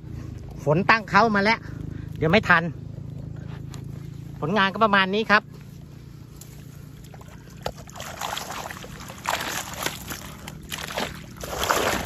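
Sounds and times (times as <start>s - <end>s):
water pouring off net: 7.2s - 12.0s.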